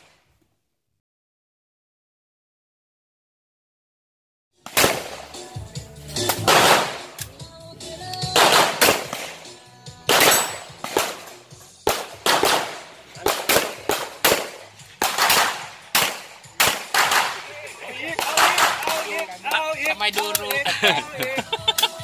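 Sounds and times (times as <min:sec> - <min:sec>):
pistol gunshots: 0:04.6 - 0:05.6, 0:06.2 - 0:07.4, 0:08.2 - 0:19.4.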